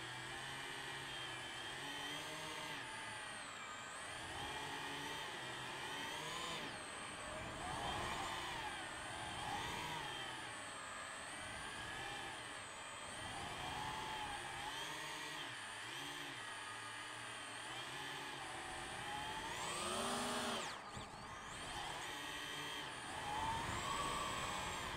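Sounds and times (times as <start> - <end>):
drone propellers whining: 4.0 - 10.7, 18.1 - 24.9.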